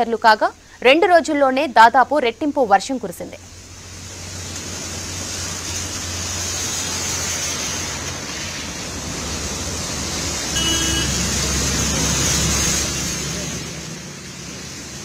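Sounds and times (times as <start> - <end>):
rain hissing: 2.4 - 15.0
tyres spraying through water: 2.8 - 15.0
bus and car engines rumbling: 3.4 - 15.0.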